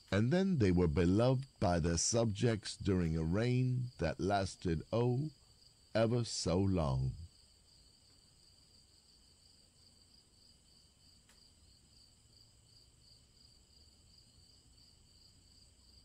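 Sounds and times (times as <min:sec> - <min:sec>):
crickets chirping: 0:00.0 - 0:16.0
faint click: 0:11.2 - 0:11.5.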